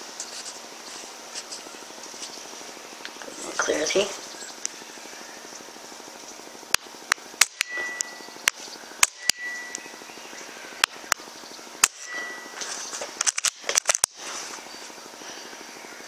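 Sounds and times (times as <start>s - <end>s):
air rifle shots: 7.4s - 8.0s, 9.0s - 9.5s, 11.8s - 12.4s.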